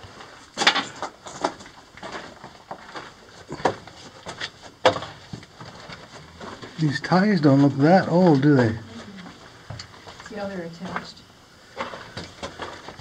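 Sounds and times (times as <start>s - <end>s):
footsteps on gravel: 0.9s - 10.2s.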